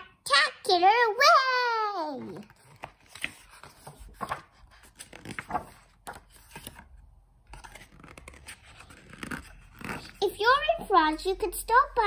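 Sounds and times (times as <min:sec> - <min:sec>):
book pages turning: 0:02.1 - 0:10.9.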